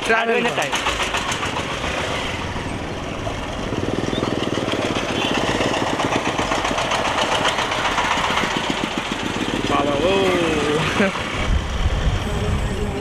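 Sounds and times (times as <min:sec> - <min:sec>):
truck engine passing: 0:00.0 - 0:13.0
motorcycle engine running: 0:00.6 - 0:13.0.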